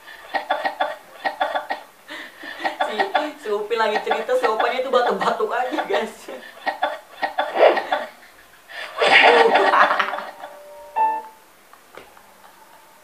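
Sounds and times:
man laughing hard: 6.6s - 10.7s.

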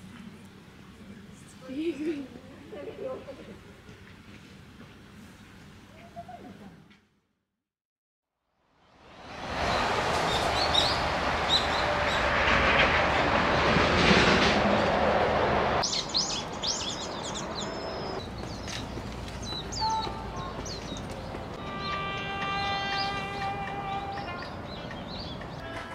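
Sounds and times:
loud rushing noise: 8.9s - 18.2s
birds chirping: 9.6s - 12.4s, 15.8s - 25.9s.

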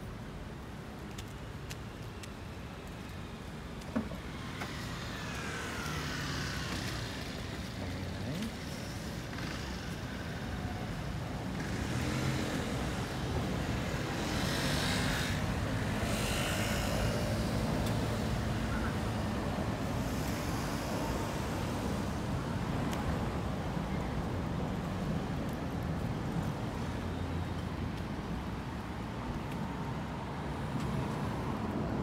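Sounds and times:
traffic rumble: 0.0s - 32.0s.

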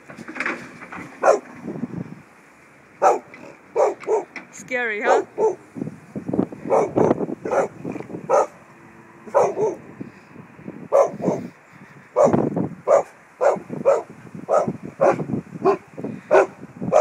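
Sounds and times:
dog barking: 1.2s - 1.5s, 3.0s - 4.3s, 5.0s - 5.6s, 6.7s - 8.6s, 9.3s - 9.8s, 10.9s - 11.5s, 12.2s - 17.0s.

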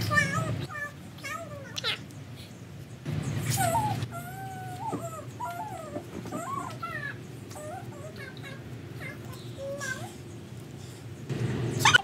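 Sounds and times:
animal whining: 3.4s - 10.2s.

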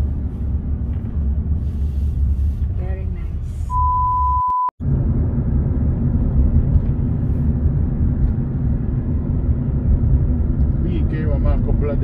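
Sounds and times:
car road rumble: 0.0s - 12.0s
electronic beep: 3.7s - 4.7s.

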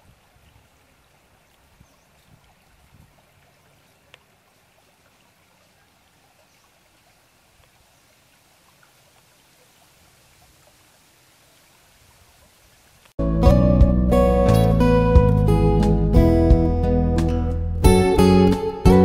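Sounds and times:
stream flowing over stones: 0.0s - 13.2s
strummed acoustic guitar music: 13.2s - 19.0s.

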